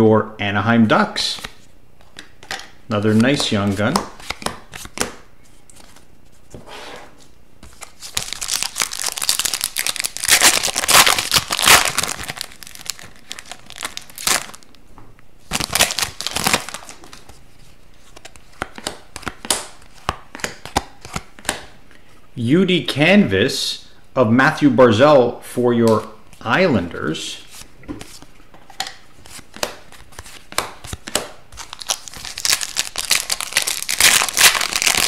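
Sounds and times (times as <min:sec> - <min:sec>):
cards fanned by hand: 0:03.3 - 0:06.0, 0:27.5 - 0:35.0
foil wrapper tearing and crinkling: 0:08.1 - 0:14.6, 0:15.5 - 0:17.0, 0:31.6 - 0:35.0.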